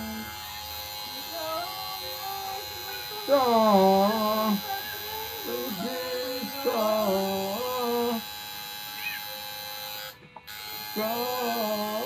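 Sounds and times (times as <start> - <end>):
person singing: 0.0 - 8.3, 10.8 - 12.0.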